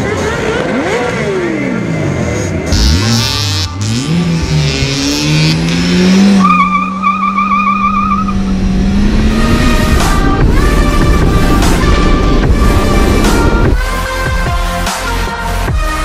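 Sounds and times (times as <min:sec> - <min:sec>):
car engine revving: 0:00.0 - 0:14.1
warbling high squeal: 0:06.4 - 0:08.5
music: 0:08.9 - 0:16.0.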